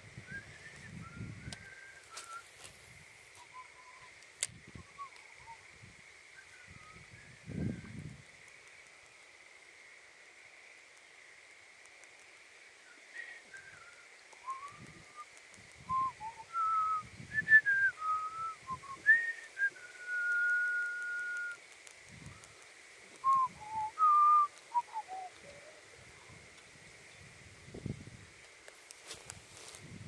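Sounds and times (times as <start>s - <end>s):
person whistling a tune: 0.3s - 2.5s, 13.2s - 15.2s, 15.9s - 21.6s, 23.2s - 25.3s.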